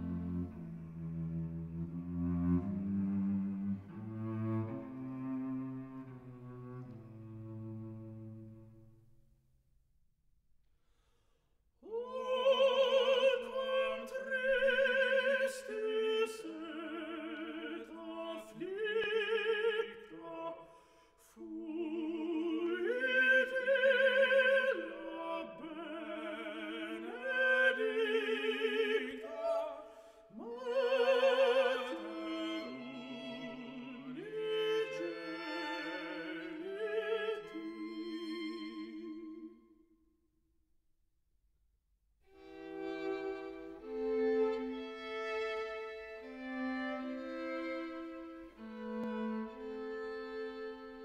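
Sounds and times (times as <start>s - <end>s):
classical accompaniment: 0.0s - 9.2s, 30.6s - 39.6s, 42.3s - 51.0s
operatic singing with vibrato: 11.8s - 39.6s.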